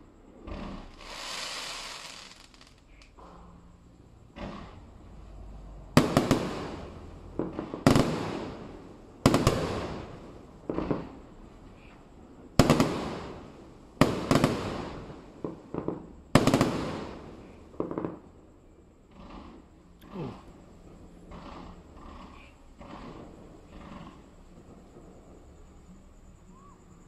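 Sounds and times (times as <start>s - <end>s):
firework shells booming: 0.2s - 26.6s
small firework cracks: 0.4s - 3.3s, 5.9s - 18.3s.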